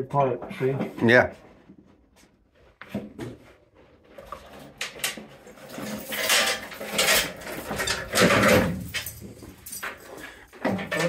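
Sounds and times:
metal parts clinking and clattering: 0:04.4 - 0:11.0.

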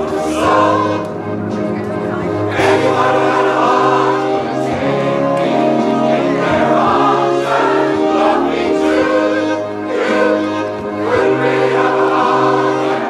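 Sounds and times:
mixed choir singing: 0:00.0 - 0:13.0.

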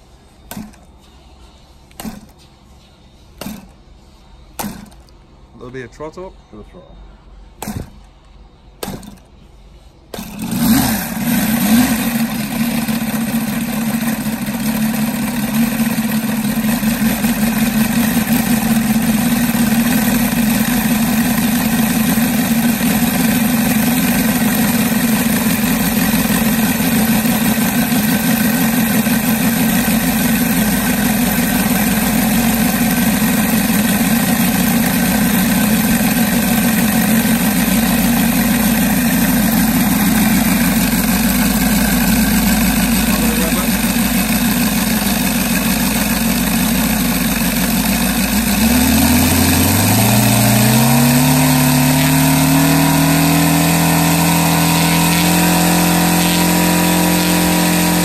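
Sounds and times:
model radial engine running: 0:10.1 - 0:58.0.

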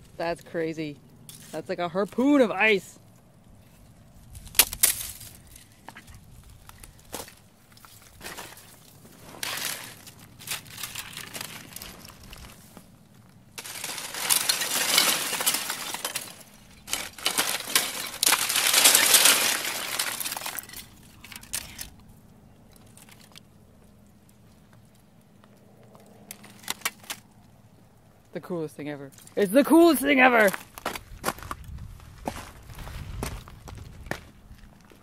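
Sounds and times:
ice crystals clinking and crackling: 0:06.5 - 0:12.8, 0:13.5 - 0:22.0, 0:22.7 - 0:23.5, 0:29.0 - 0:31.0.

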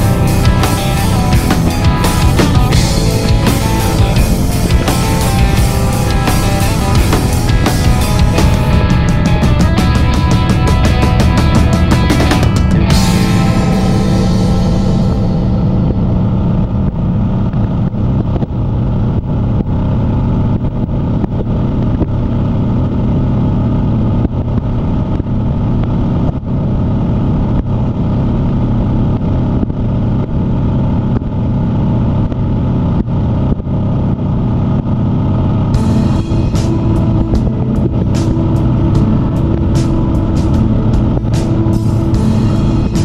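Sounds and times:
motorcycle engine drone: 0:00.0 - 0:43.0
wind rush on microphone: 0:00.0 - 0:43.0.

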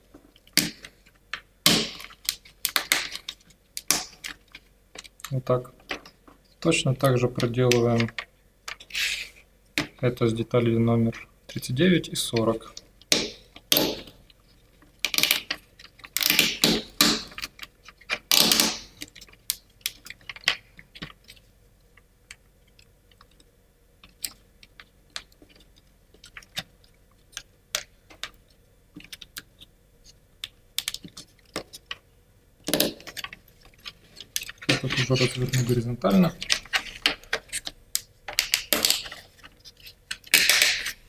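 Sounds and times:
wooden parts scraping: 0:32.7 - 0:37.7.

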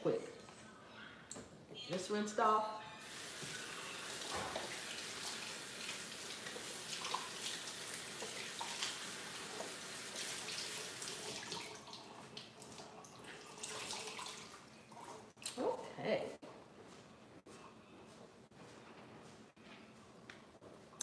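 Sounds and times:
faucet running into sink: 0:03.0 - 0:15.3.

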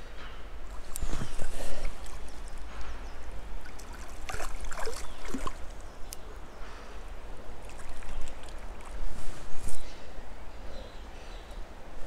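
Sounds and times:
water splashing and gurgling: 0:00.7 - 0:06.0, 0:07.4 - 0:09.5.

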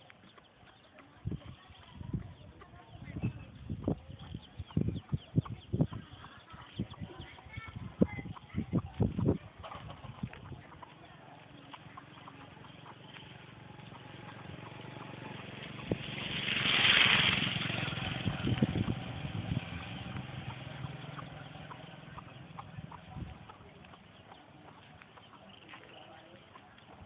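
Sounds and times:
vehicle passing by: 0:11.2 - 0:25.8.

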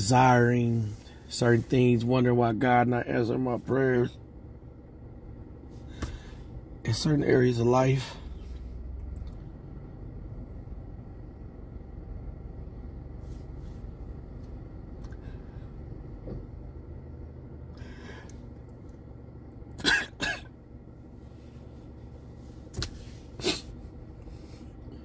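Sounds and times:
steady low hum: 0:00.0 - 0:25.0
man clearing his throat: 0:19.8 - 0:20.5.

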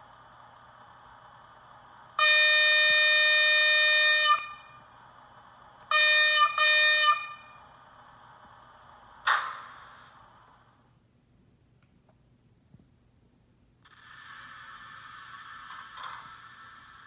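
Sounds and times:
electric locomotive horn: 0:02.2 - 0:04.8, 0:05.9 - 0:07.6.

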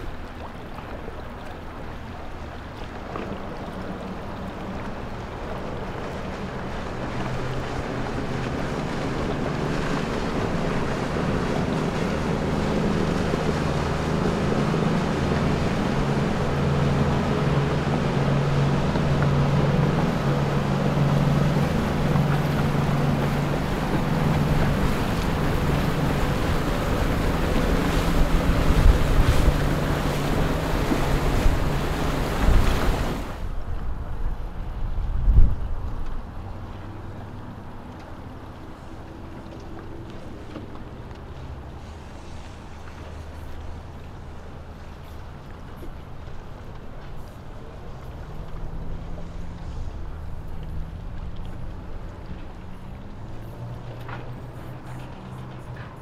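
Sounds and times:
motorboat engine hum: 0:00.0 - 0:56.0
water wash: 0:00.0 - 0:56.0
wind buffeting microphone: 0:01.9 - 0:41.2.

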